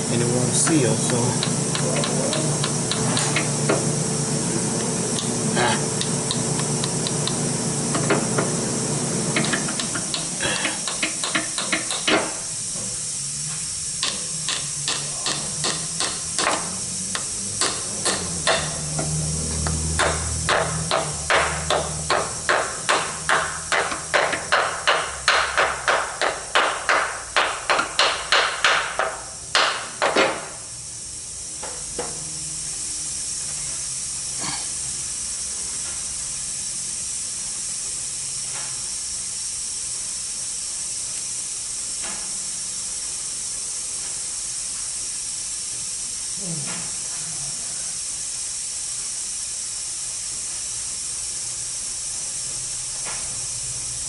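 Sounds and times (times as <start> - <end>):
steady hiss: 0.0 - 54.0
hammer tapping metal: 9.4 - 12.3, 14.0 - 18.7, 20.0 - 29.8.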